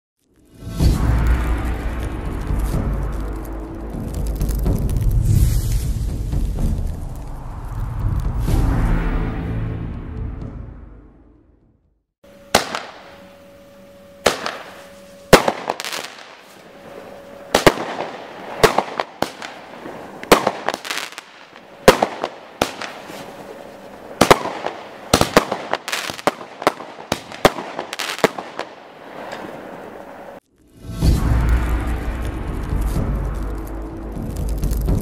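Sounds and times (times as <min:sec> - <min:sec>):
fireworks bangs: 0:12.5 - 0:13.5, 0:14.2 - 0:30.4.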